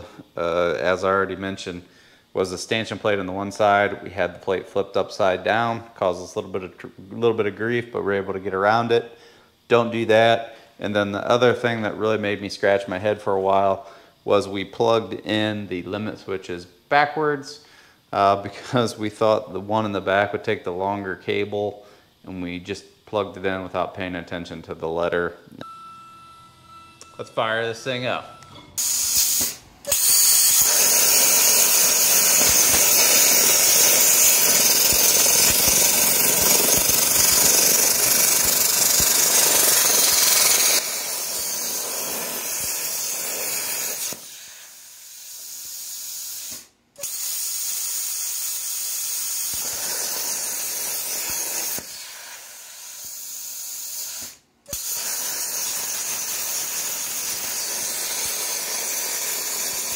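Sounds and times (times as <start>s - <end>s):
plasma cutter arc hissing: 28.8s - 59.9s.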